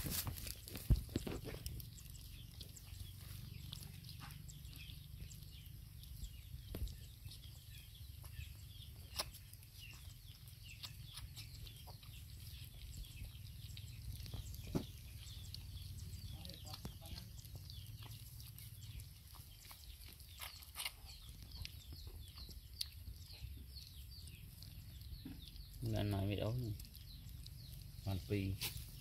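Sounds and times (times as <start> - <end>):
low steady rumble: 0.0 - 20.1
puppies lapping and chewing: 0.0 - 29.0.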